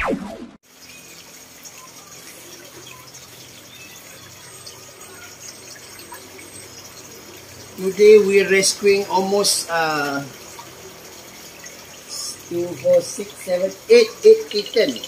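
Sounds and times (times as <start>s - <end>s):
faint high chirps: 13.9s - 15.0s.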